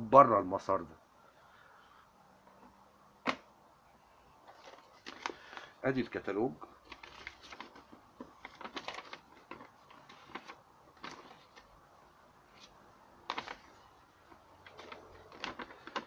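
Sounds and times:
paper rustling and crinkling: 0:04.4 - 0:05.8, 0:06.8 - 0:11.7, 0:12.5 - 0:16.0.

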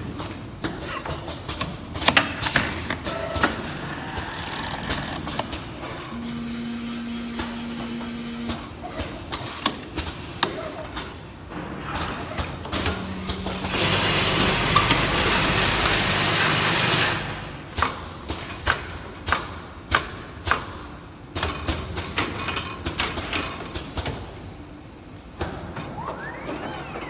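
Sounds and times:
pneumatic cylinders clacking: 0:00.0 - 0:06.5, 0:07.3 - 0:24.5
loud machine hiss with hum: 0:06.2 - 0:08.6, 0:13.5 - 0:17.6.

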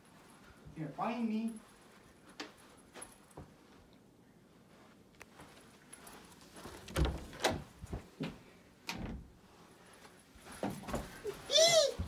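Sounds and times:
closet door knocks and clatters: 0:06.9 - 0:08.3, 0:08.9 - 0:09.3.

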